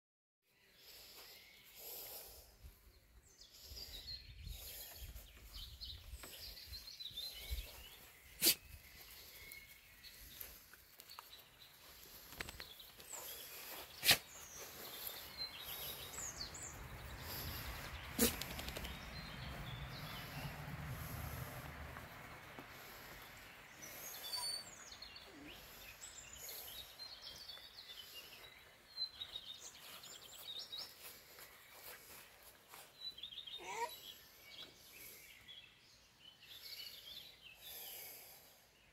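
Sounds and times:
sharp clicks: 18.2 - 19.0.

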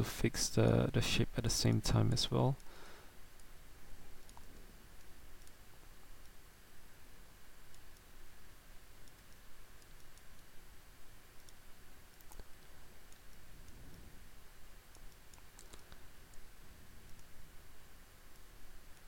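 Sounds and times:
steady low hiss: 0.0 - 19.0
computer mouse clicks: 4.2 - 5.6, 7.7 - 8.1, 9.0 - 10.5, 11.4 - 13.8, 14.9 - 16.4, 17.0 - 17.4.

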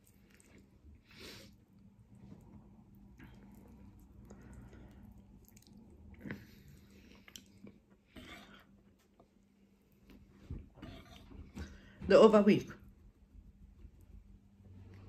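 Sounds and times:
chewing and mouth sounds: 0.0 - 1.0, 1.7 - 9.4.

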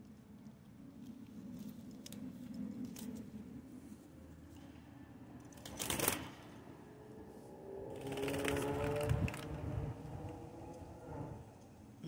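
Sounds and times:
bird rustling and shaking feathers: 7.9 - 9.5
wings fluttering: 7.9 - 9.7.

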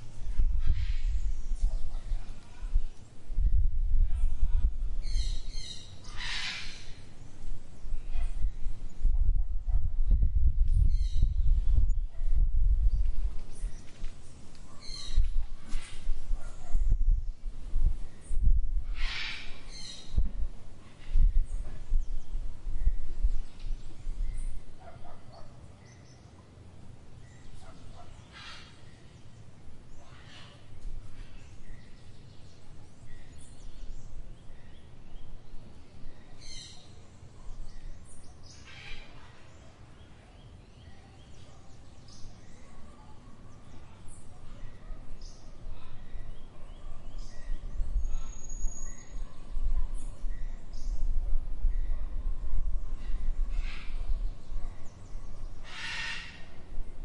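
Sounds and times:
distant animal calls: 5.2 - 7.1, 18.9 - 20.2, 27.6 - 28.9, 55.6 - 56.7
faint bird chirps: 27.2 - 56.6.

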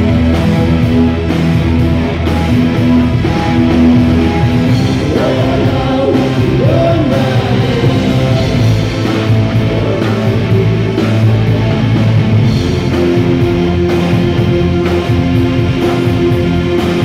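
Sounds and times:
live rock band playing: 0.0 - 17.0
man singing: 4.7 - 12.1.

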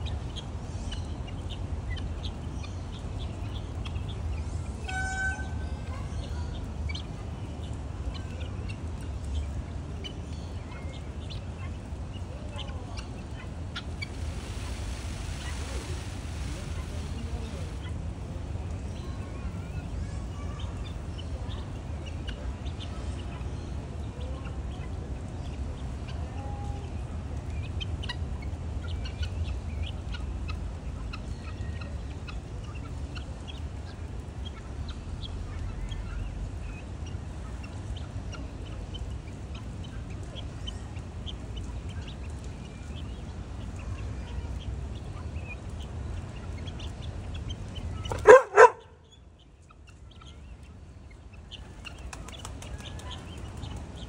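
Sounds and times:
birds chirping and clucking: 0.1 - 19.7, 27.7 - 54.0
steady low rumble: 9.3 - 19.8.

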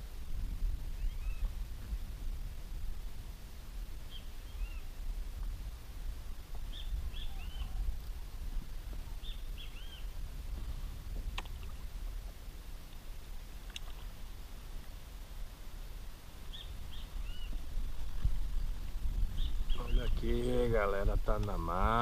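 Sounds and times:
wind rumble on microphone: 0.0 - 22.0
bird chirping: 4.1 - 4.9, 6.7 - 7.9, 9.2 - 10.1, 16.5 - 17.6, 19.2 - 20.7.

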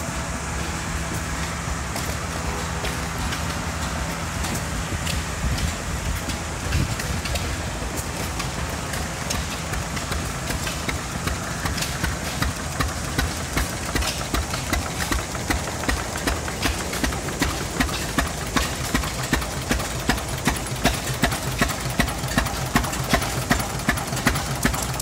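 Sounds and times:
gas engine chugging: 0.0 - 25.0.

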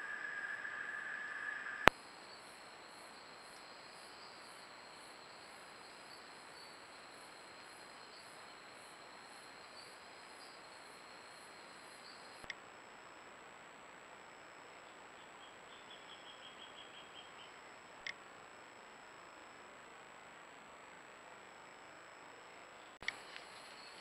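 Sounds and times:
steady hiss: 0.0 - 9.4
insects chirping: 0.0 - 12.5, 14.7 - 17.7, 22.8 - 24.0.

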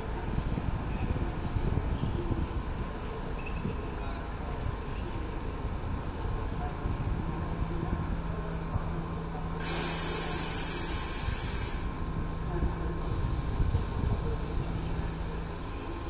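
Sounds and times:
compressed air hiss: 9.6 - 12.0
electric locomotive humming: 9.6 - 16.0.

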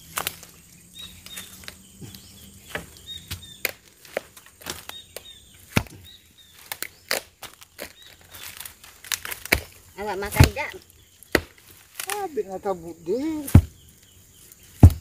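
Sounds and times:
blade chopping wood: 2.7 - 6.0, 9.1 - 12.2, 13.4 - 13.8, 14.8 - 15.0.

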